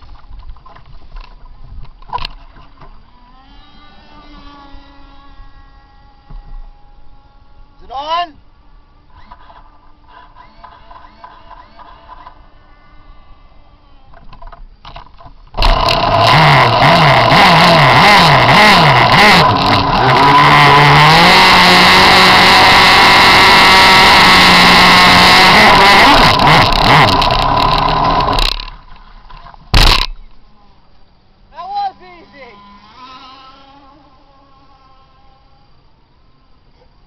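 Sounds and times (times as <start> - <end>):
two-stroke engine revving: 9.1 - 12.4, 15.5 - 30.2.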